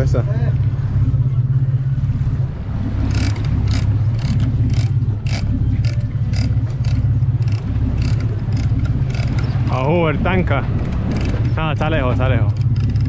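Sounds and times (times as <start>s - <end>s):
boat engine humming: 0.0s - 13.0s
sharp clicks and knocks: 3.1s - 9.7s, 10.7s - 11.7s, 12.4s - 13.0s.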